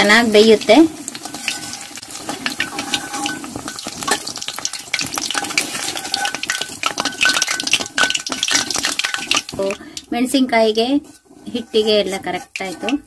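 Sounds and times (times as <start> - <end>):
deep-frying in hot oil: 0.0 - 13.0
metal skimmer stirring in oil: 0.0 - 13.0.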